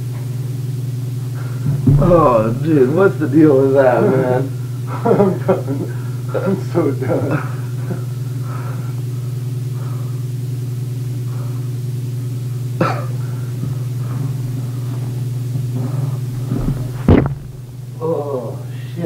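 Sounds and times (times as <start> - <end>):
steady low hum: 0.0 - 19.0
knock: 1.7 - 2.9, 16.4 - 17.7.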